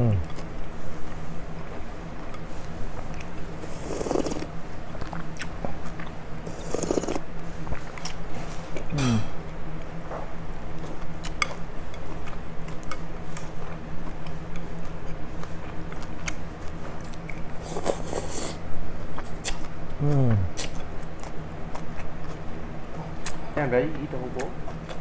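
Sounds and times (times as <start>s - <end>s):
steady low hum: 0.0s - 25.0s
chewing: 2.2s - 8.2s, 10.8s - 18.6s, 19.2s - 23.4s
slurping: 3.6s - 4.5s, 6.5s - 7.2s.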